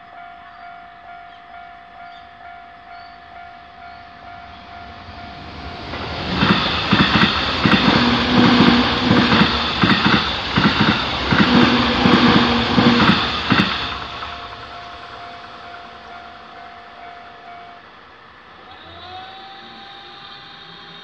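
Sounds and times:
level-crossing warning bell: 0.0s - 21.0s
train low hum: 0.0s - 21.0s
train wheels clacking: 4.3s - 18.0s.

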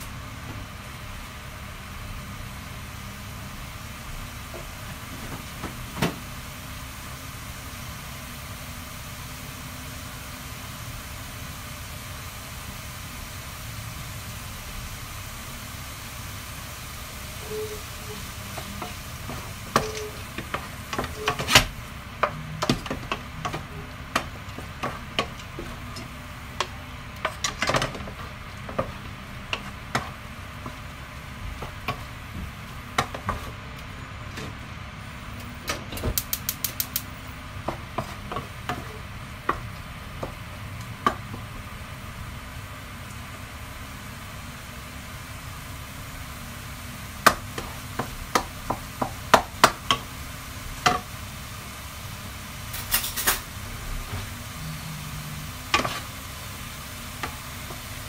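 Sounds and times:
chicken sizzling in a frying pan: 0.0s - 58.0s
wooden spatula scraping a pan: 32.9s - 33.6s, 37.6s - 40.4s, 54.2s - 56.2s.

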